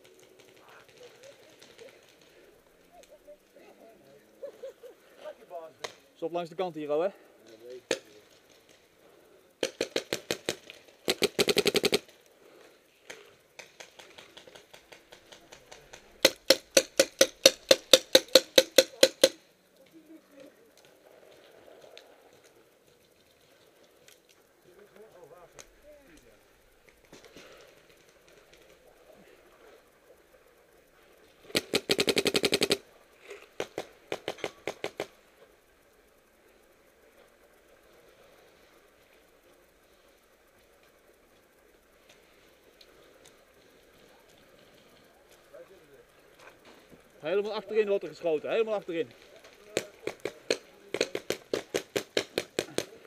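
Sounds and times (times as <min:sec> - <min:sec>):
paintball markers firing: 0:09.6 - 0:12.1, 0:13.6 - 0:19.4, 0:31.5 - 0:32.8, 0:33.5 - 0:35.2, 0:49.6 - 0:53.0.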